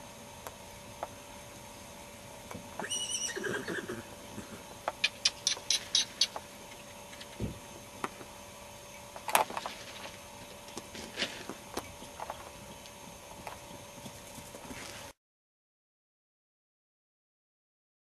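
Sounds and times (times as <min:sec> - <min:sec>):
foal high call: 0:02.8 - 0:04.6
hoofbeats on turf: 0:10.8 - 0:15.2.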